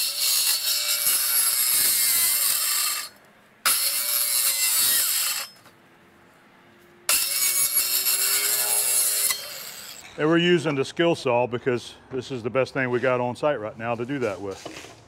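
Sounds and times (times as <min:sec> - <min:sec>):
circular saw cutting plastic pipe: 0:00.0 - 0:05.6, 0:07.1 - 0:10.0.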